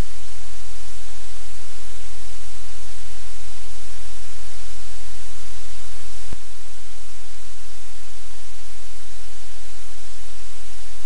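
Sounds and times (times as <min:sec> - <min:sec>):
loud steady hiss: 0:00.0 - 0:11.0.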